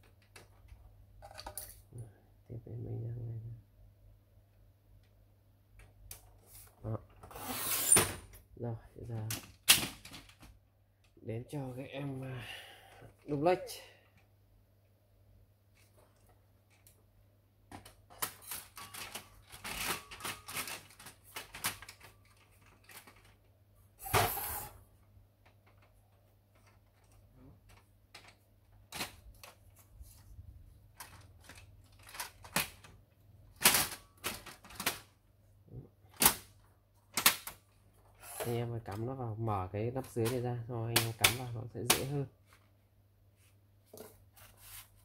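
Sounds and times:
plastic parts clicking and knocking: 0.0 - 2.0, 9.0 - 11.2, 17.7 - 23.6, 25.4 - 29.8, 30.9 - 35.2, 36.1 - 39.2, 40.0 - 42.6.

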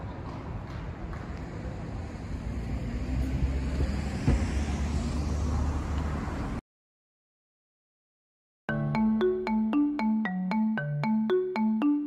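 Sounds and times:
road traffic rumble: 0.0 - 6.6.

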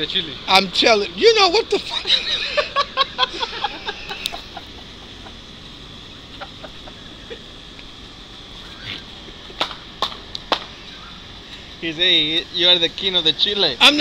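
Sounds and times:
faint background hiss: 0.0 - 14.0
man laughing: 1.8 - 5.5, 6.3 - 7.6, 8.6 - 9.7.

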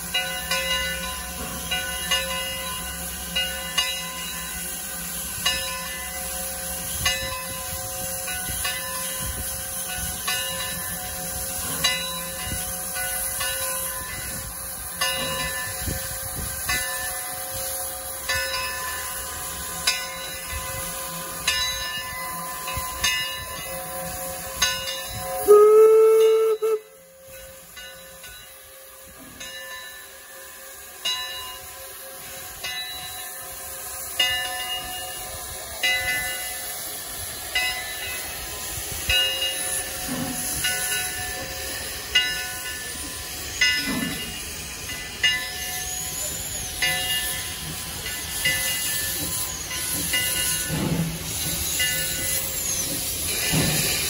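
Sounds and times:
steam locomotive hissing: 0.0 - 54.0
steam whistle blast: 25.2 - 27.3.

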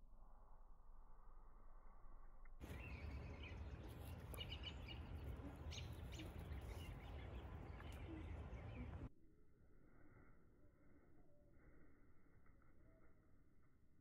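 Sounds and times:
birds chirping: 2.6 - 9.1.

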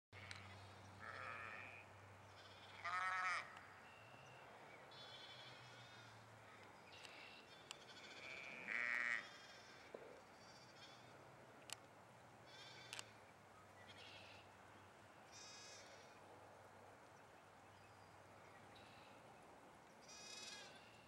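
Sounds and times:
sheep bleating: 1.0 - 1.8, 2.4 - 3.5, 8.0 - 9.8.

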